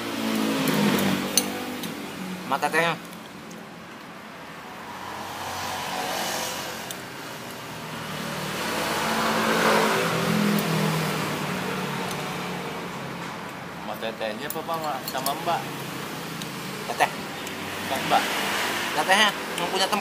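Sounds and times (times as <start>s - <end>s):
vehicle driving past: 4.4s - 12.9s.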